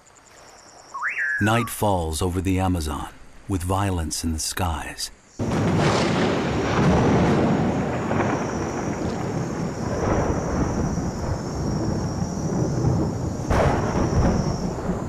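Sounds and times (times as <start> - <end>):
steady rain: 1.9 - 15.0
sharp thunderclap: 5.4 - 15.0
thunder rumbling: 5.4 - 15.0.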